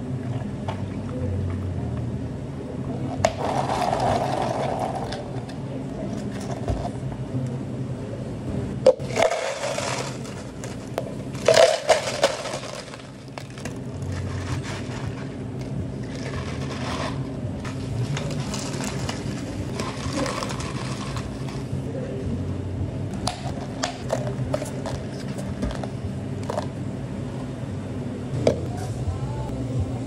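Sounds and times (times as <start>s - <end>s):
steady low hum: 0.0s - 30.0s
ice cubes clattering into plastic cups: 9.0s - 15.3s, 16.1s - 21.7s.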